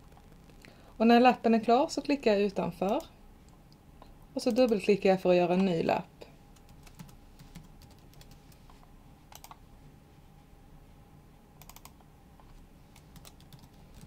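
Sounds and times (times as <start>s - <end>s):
computer keyboard keystrokes: 6.6s - 8.4s, 9.3s - 9.6s, 11.6s - 12.0s, 13.0s - 14.0s
computer mouse clicks: 9.3s - 9.6s, 11.6s - 14.0s.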